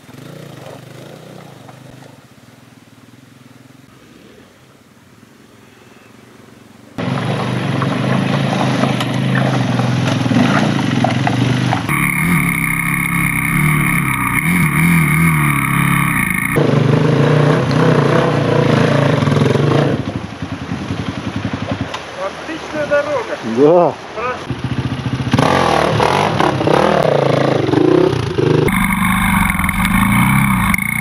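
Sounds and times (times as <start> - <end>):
motorcycle engines revving: 0.0 - 2.3, 7.0 - 22.5, 24.3 - 31.0.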